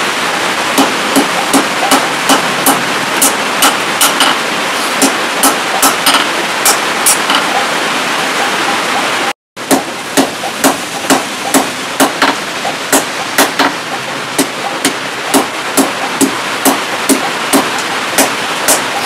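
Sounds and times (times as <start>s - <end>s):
steady rushing noise: 0.0s - 19.0s
hammer striking steel on anvil: 0.8s - 4.4s, 5.0s - 7.4s.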